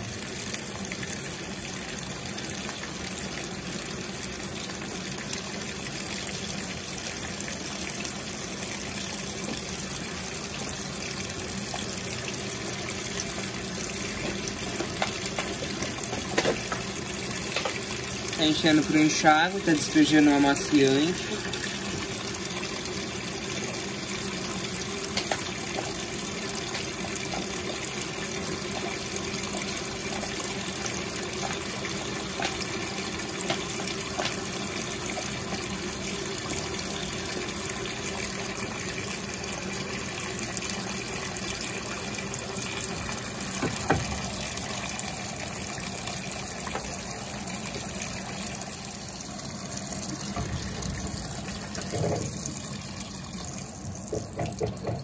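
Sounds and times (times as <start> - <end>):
water pouring into washing machine: 0.0 - 55.0
washing machine clunks: 14.1 - 17.9, 43.5 - 44.3, 54.0 - 55.0.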